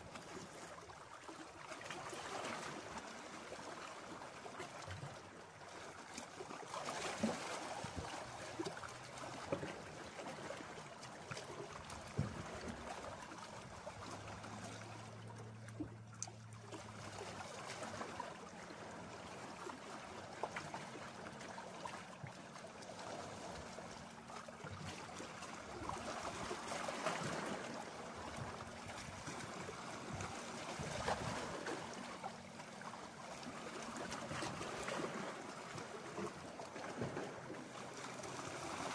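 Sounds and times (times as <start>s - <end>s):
waves lapping on rocks: 5.7s - 15.0s, 22.7s - 38.9s.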